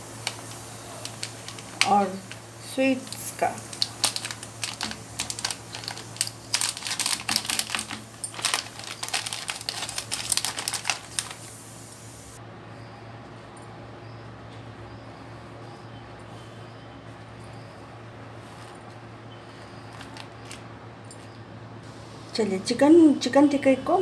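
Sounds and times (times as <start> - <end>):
pastry packet crackling: 0.0 - 12.4, 19.8 - 20.7
steady low hum: 0.0 - 24.0.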